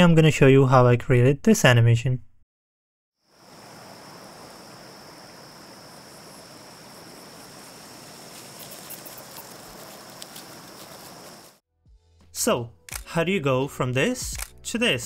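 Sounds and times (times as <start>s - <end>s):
crickets chirring: 3.2s - 11.6s
faint sharp high clicks: 12.9s - 13.1s.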